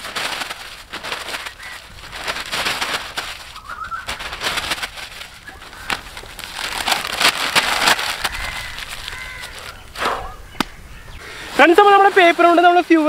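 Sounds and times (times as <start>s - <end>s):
newspaper being crumpled: 0.0s - 9.9s, 11.6s - 13.0s
bird chirping: 3.5s - 4.4s, 8.2s - 11.6s.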